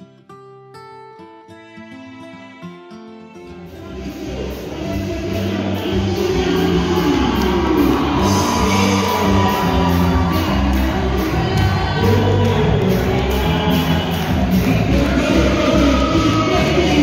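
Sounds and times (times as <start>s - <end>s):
crowd shouting and cheering: 3.5s - 17.0s
song with bass and vocals: 3.6s - 17.0s.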